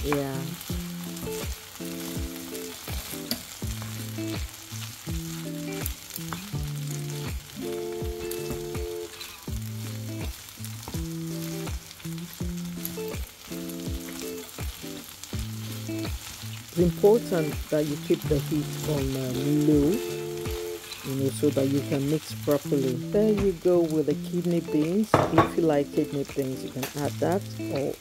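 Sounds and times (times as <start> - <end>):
background music low held notes: 0.0 - 28.0
fried rice sizzling in pan: 0.0 - 28.0.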